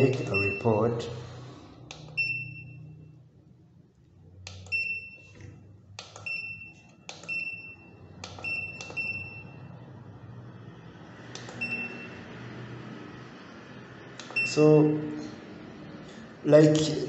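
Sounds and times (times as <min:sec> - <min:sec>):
short high beeps: 0:00.1 - 0:00.8, 0:02.2 - 0:03.0, 0:06.2 - 0:09.7
keypad button clicks: 0:04.5 - 0:07.6, 0:08.2 - 0:09.2.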